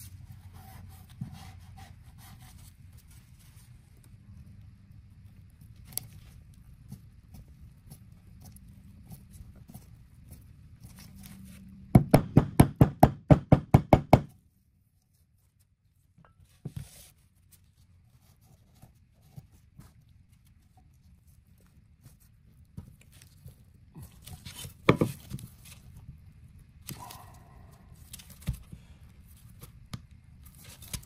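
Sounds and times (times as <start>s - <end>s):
handling sounds on bench: 24.8s - 25.4s.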